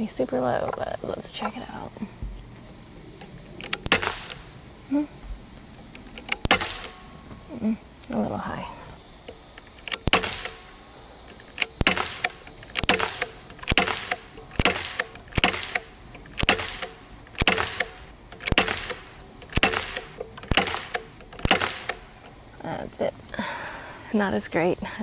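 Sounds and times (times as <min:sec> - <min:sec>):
pistol shots cracking: 0:03.6 - 0:04.5, 0:06.1 - 0:07.1, 0:09.8 - 0:10.8, 0:11.4 - 0:22.2.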